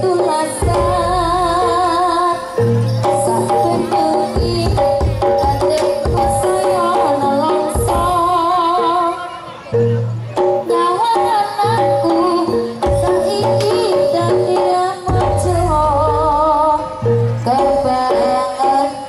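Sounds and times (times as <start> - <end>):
drum strokes and percussion: 0.0 - 8.9, 9.8 - 19.0
woman singing: 0.0 - 9.4, 10.6 - 19.0.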